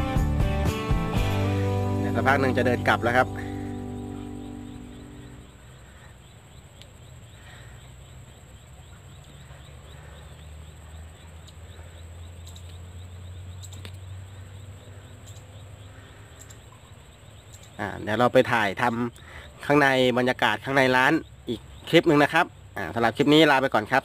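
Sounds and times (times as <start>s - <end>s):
faint insect chirping: 1.5s - 24.0s
soft clicks: 6.7s - 7.0s, 11.4s - 11.6s, 12.4s - 12.8s, 13.6s - 14.1s.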